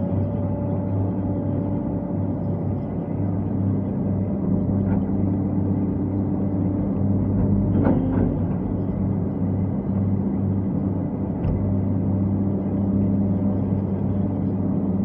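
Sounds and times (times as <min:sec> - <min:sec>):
diesel engine under load: 0:06.6 - 0:14.9.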